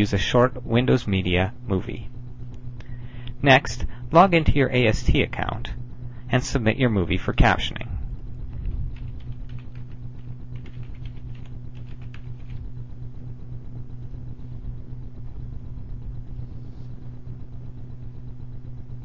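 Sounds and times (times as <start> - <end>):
low electrical hum: 0.0 - 19.0
keyboard keys clicking: 8.6 - 12.6.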